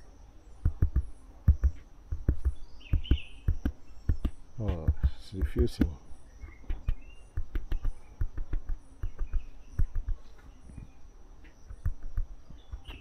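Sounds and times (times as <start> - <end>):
short bird chirps: 2.4 - 11.0, 11.6 - 13.0.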